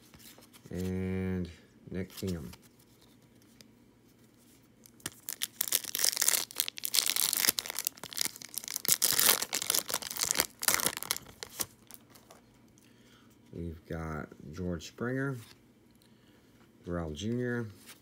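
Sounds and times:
foil wrapper crinkling and tearing: 0:04.8 - 0:12.4.

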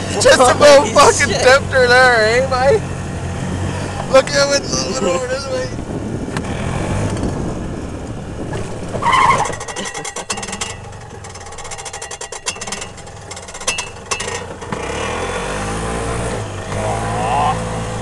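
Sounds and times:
golf cart running: 0:00.0 - 0:18.0
rapid clicks and rattles: 0:09.4 - 0:14.8.

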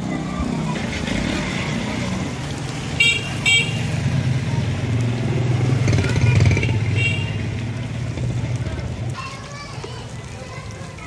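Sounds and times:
vehicle horn tooting: 0:03.0 - 0:03.9, 0:06.6 - 0:07.5.

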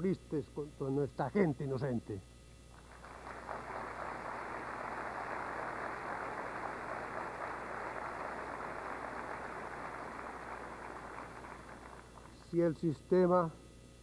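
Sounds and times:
audience applauding: 0:02.8 - 0:12.4.

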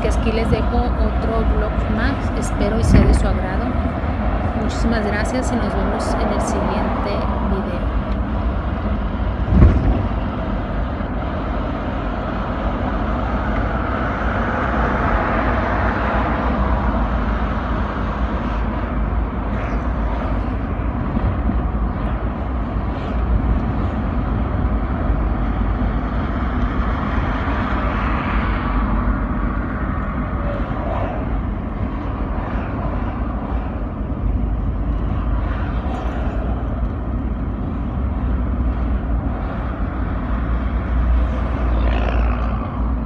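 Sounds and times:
car engine and tyre rumble: 0:00.0 - 0:43.0
thump: 0:09.5 - 0:10.2.

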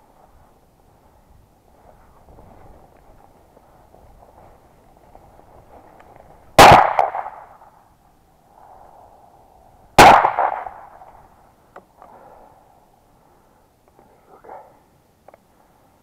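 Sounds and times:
shotgun shots: 0:06.6 - 0:07.6, 0:10.0 - 0:11.0.

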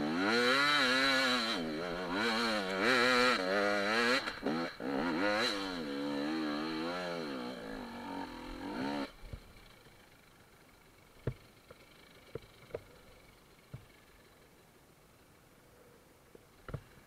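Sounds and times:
motorcycle engine revving: 0:00.0 - 0:10.2.

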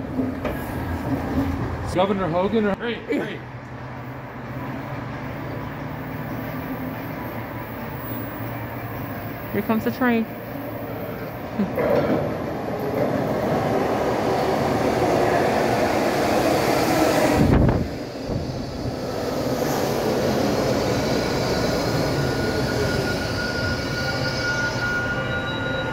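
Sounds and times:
subway train rumbling past: 0:00.0 - 0:25.9
thin steady squeal: 0:20.7 - 0:25.9.

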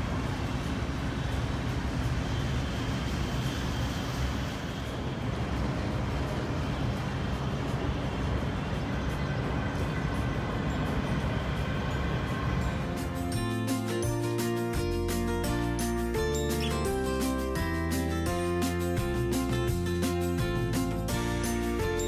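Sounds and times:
water noise: 0:00.0 - 0:13.9.

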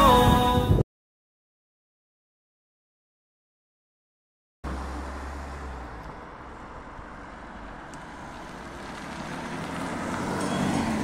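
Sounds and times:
car crossing railway tracks: 0:04.6 - 0:11.0
car engine: 0:04.6 - 0:11.0
tyre and road noise: 0:04.6 - 0:11.0.

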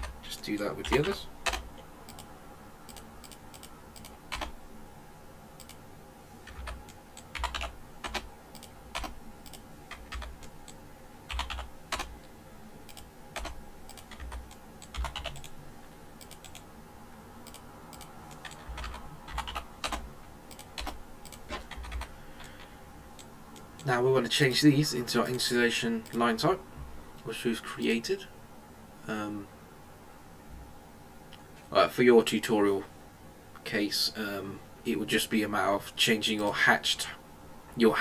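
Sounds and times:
keyboard and mouse clicks: 0:00.0 - 0:02.3, 0:02.9 - 0:04.6, 0:05.6 - 0:05.8, 0:06.5 - 0:12.1, 0:12.9 - 0:15.6, 0:16.2 - 0:16.7, 0:17.4 - 0:22.6
faint steady hum: 0:00.0 - 0:38.0.

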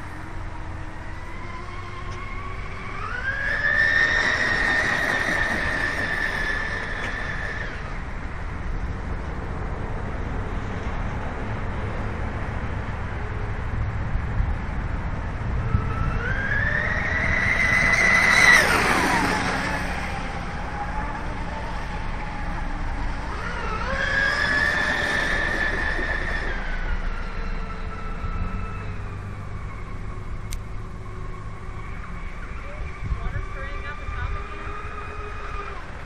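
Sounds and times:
electric boat motors whining: 0:00.0 - 0:36.0.

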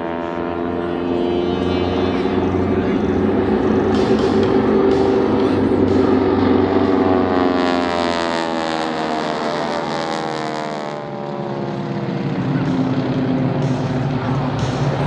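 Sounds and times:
propeller airplanes droning past: 0:00.0 - 0:15.0.

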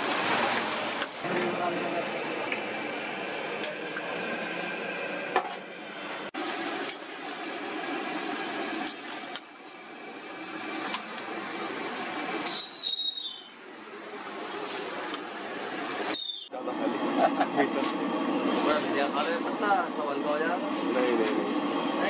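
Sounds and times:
street stall bustle: 0:00.0 - 0:04.3, 0:11.0 - 0:22.0
high squeal: 0:12.4 - 0:13.6.

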